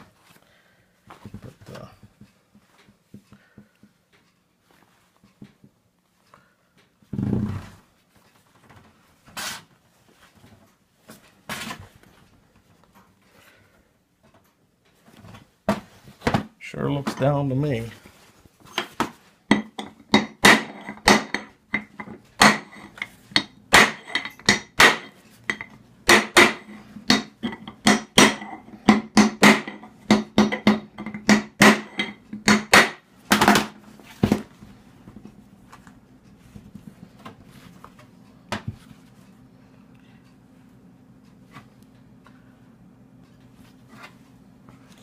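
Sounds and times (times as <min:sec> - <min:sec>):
hammer striking metal: 0:19.5 - 0:33.6.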